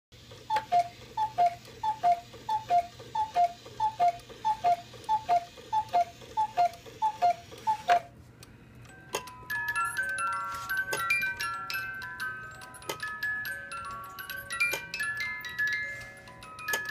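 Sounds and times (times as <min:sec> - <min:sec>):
cuckoo clock calls: 0:00.2 - 0:08.2, 0:09.1 - 0:16.9
clock mechanism clicking: 0:00.5 - 0:08.1
music box plinking a tune: 0:08.8 - 0:16.9.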